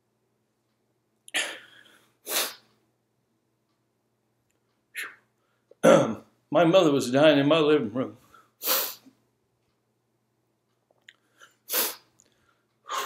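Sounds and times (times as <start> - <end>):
man sniffing sharply: 1.4 - 2.7, 8.6 - 9.1, 11.4 - 12.1.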